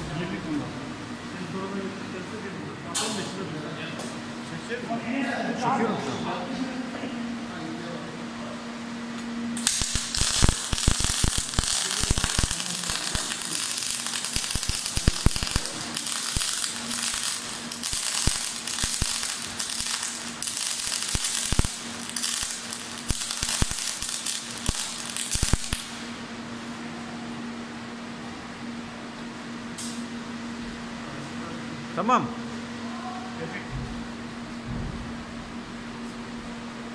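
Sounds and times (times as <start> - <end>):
welding arc crackling and popping: 9.6 - 26.2.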